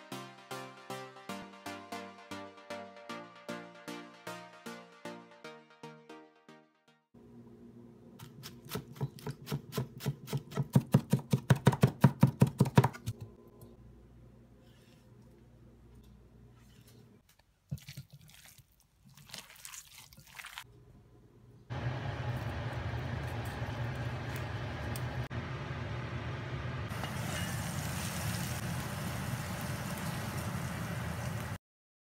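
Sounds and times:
low hum: 20.9 - 31.6
food sizzling in frying pan: 22.0 - 31.6.

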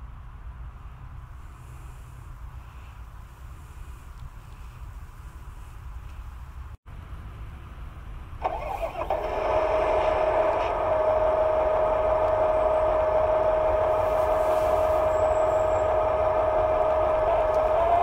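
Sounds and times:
model tractor high whine: 8.4 - 18.0.

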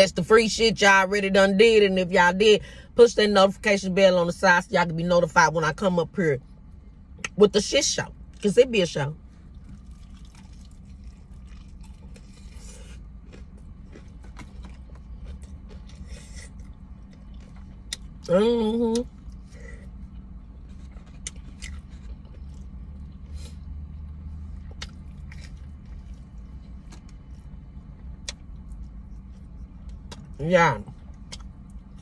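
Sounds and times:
low steady rumble: 0.0 - 32.0
chewing and crunching: 9.4 - 32.0.

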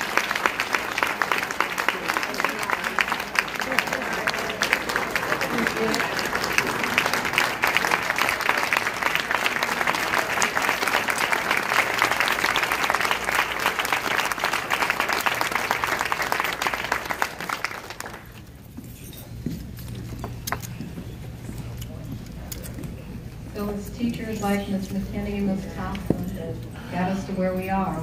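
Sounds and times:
audience applauding: 0.0 - 18.6.

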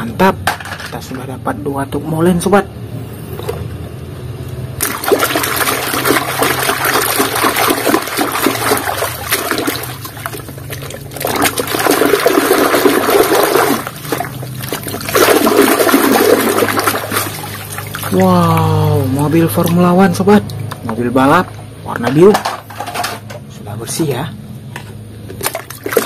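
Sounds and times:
water sloshing in a basin: 4.8 - 23.2, 25.2 - 26.0.

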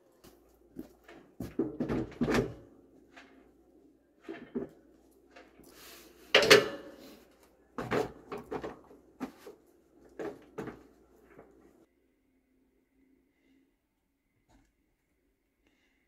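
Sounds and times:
chainsaws clunking against steel frame: 6.3 - 7.0.

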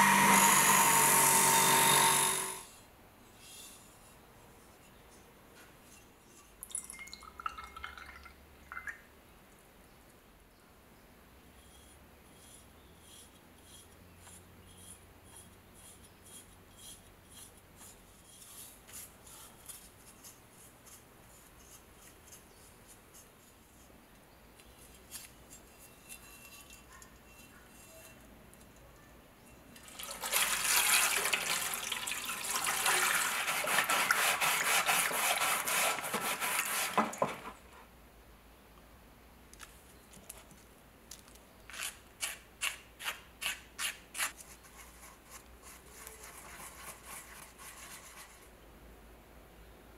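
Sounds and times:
sponge scrubbing knife blade: 11.6 - 23.5, 32.9 - 37.2.

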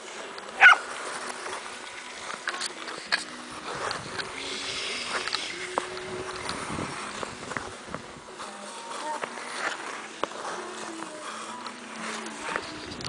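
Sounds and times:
skate blades gliding on ice: 0.0 - 13.0
ice pinging and clicking: 0.2 - 8.0.

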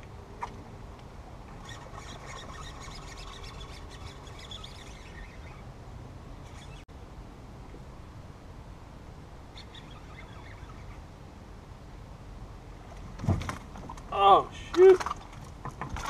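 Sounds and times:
high chirping and squeaking: 1.5 - 5.7, 6.3 - 6.9, 9.5 - 11.0.

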